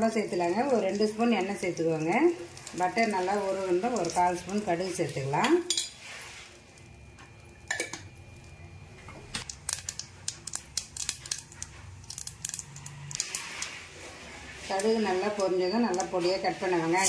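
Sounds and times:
mustard seeds popping in butter: 9.4 - 13.3.

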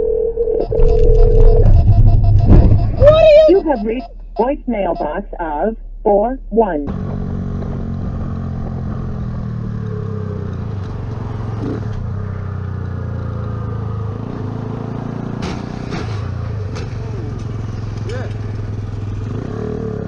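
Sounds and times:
road and wind noise: 0.6 - 20.0
motorcycle engine running: 6.8 - 15.4, 16.4 - 20.0.

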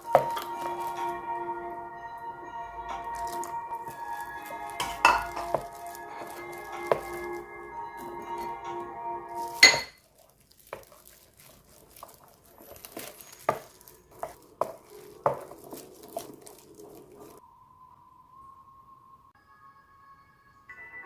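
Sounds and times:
spoon stirring thick sauce: 3.2 - 7.5, 10.7 - 17.4
spoon tapping glass bowl: 4.7 - 5.7, 9.6 - 10.0
faint steady tone: 17.4 - 21.0.

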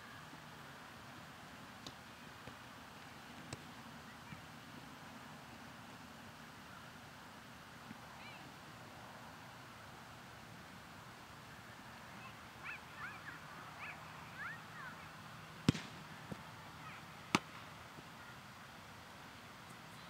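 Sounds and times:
soccer ball thuds: 15.6 - 16.4.

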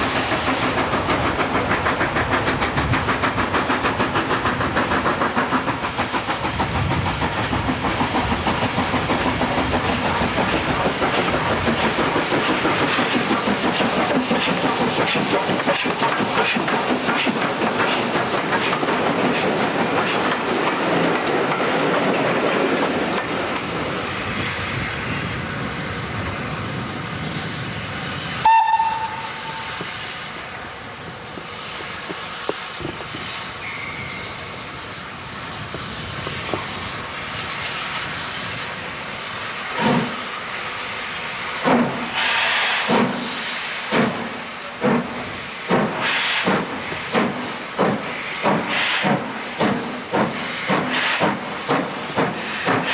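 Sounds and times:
steam hiss: 0.0 - 52.9
steam locomotive exhaust beats: 0.0 - 52.9
train carriages rolling past: 0.0 - 52.9
steam train whistle: 28.4 - 29.9, 42.1 - 42.9.

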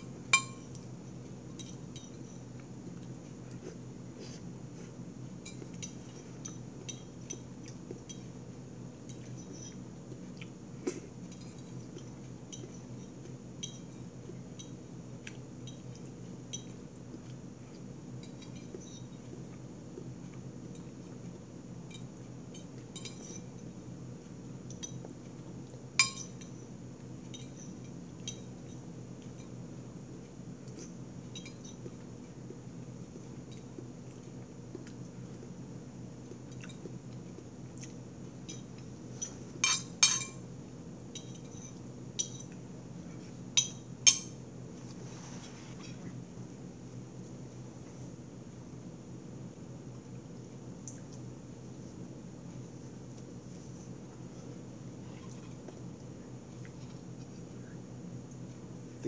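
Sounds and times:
steady low hum: 0.0 - 59.0
spoon clinking ceramic bowl: 0.4 - 0.8, 26.0 - 26.4, 39.6 - 40.4, 43.6 - 44.4.

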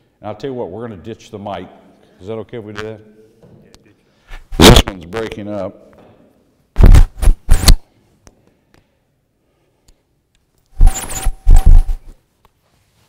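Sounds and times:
cloth rubbing over microphone: 6.8 - 7.8, 10.8 - 13.0.

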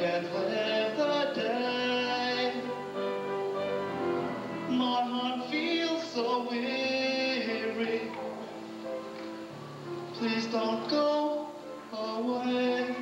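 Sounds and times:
man singing a slow ballad: 0.0 - 2.8, 4.7 - 8.4, 10.1 - 13.0.

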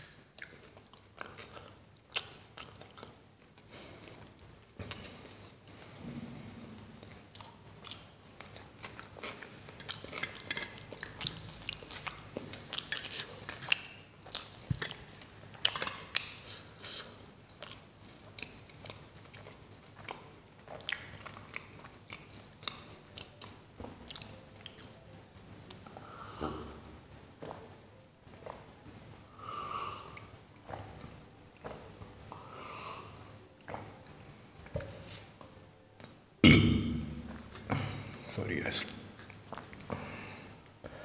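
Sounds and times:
person biting and chewing bread: 0.0 - 5.3, 6.8 - 27.7.

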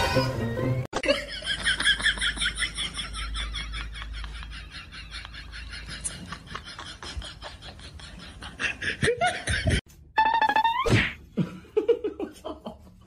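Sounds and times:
people laughing: 1.0 - 9.8.

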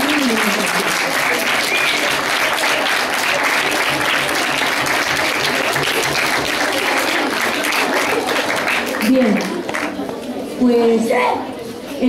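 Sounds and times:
children applauding: 0.0 - 10.0.

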